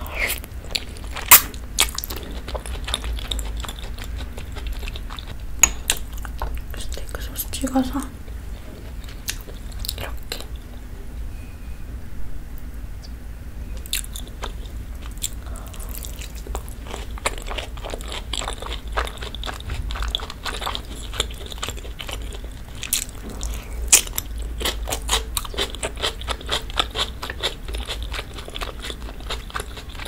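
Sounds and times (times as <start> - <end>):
wet crunchy mouth clicks: 0.0 - 7.1, 9.0 - 10.6
chewing and biting food: 0.2 - 7.2, 8.3 - 10.7, 13.8 - 30.0.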